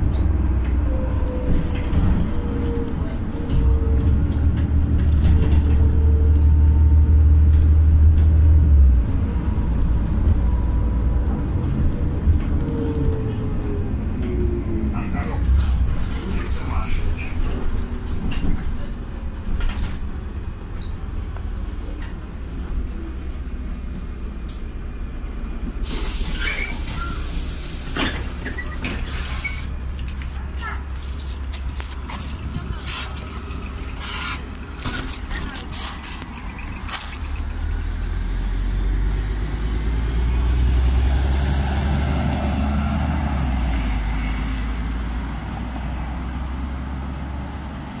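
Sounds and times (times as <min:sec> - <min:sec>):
bus engine rumble: 0:00.0 - 0:48.0
compressed air hissing: 0:25.8 - 0:28.4.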